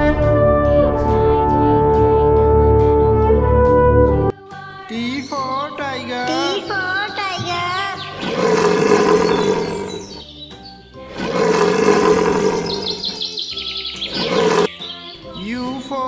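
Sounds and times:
tiger roaring: 8.2s - 10.2s, 11.1s - 13.1s, 14.2s - 14.7s.

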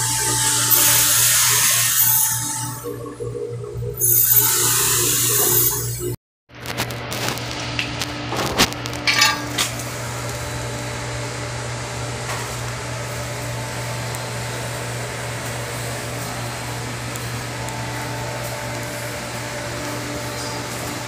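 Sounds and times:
electric motor humming: 0.0s - 3.3s.

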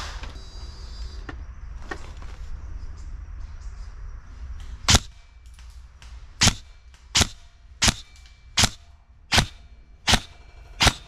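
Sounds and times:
airsoft rifle shots: 4.8s - 5.6s, 6.3s - 11.0s.

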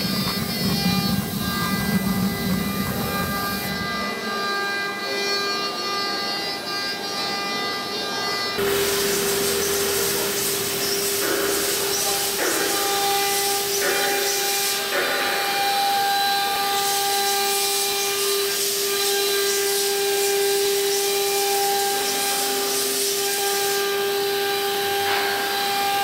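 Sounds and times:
bits rasping through wood: 8.6s - 15.8s
router spindles whining: 8.6s - 26.0s.

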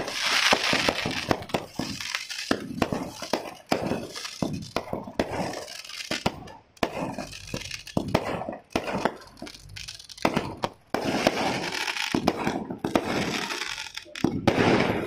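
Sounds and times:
fireworks crackle: 0.0s - 15.0s
fireworks cracks and bangs: 0.0s - 15.0s.

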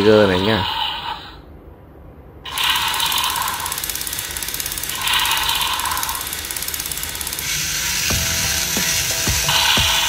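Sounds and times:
toy motor and gearbox clicking: 2.5s - 10.0s.

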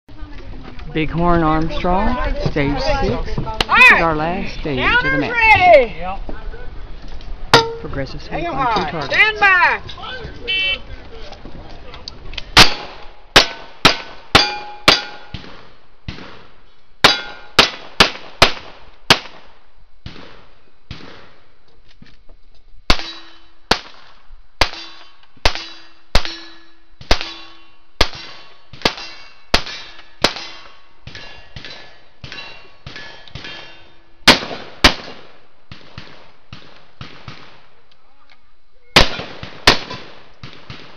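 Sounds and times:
steel targets ringing: 7.6s - 7.9s, 13.4s - 15.4s, 17.0s - 17.6s, 25.6s - 27.8s
gunshots: 12.6s - 21.4s, 22.9s - 37.7s, 39.0s - 40.9s.

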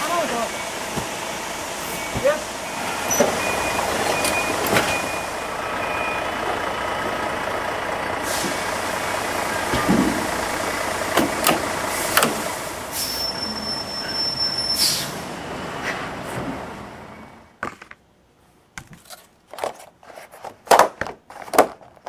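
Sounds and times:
truck engine running: 0.0s - 17.4s
air brake hisses: 8.2s - 8.6s, 11.9s - 15.2s.

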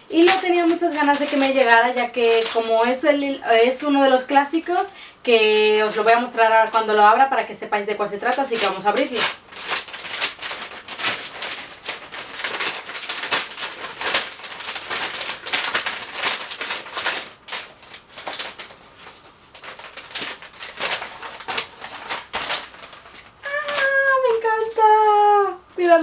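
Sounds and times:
paper envelope tearing: 0.2s - 2.7s, 8.3s - 25.0s.

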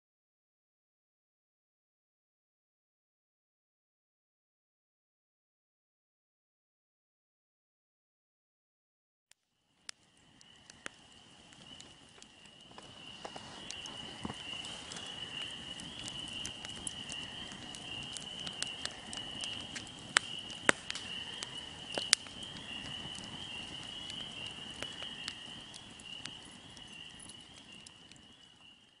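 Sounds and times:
campfire crackling: 9.4s - 29.0s
crickets chirping: 9.6s - 29.0s.

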